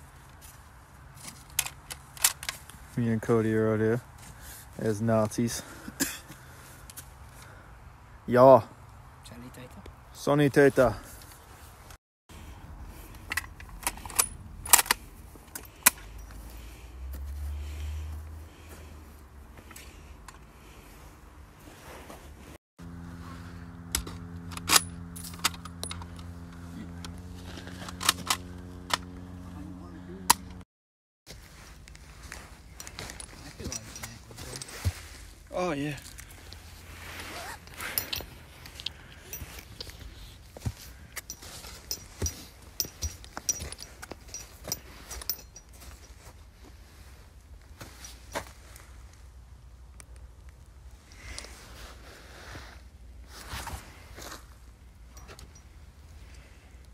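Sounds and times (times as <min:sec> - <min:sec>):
handling knocks and clicks: 0:40.6 - 0:46.3.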